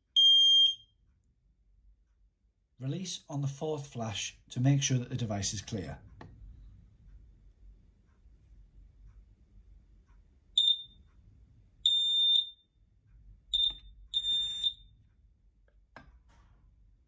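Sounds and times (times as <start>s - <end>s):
smoke alarm beeping: 0.1s - 1.0s, 10.6s - 11.1s, 11.8s - 12.8s, 13.5s - 15.0s.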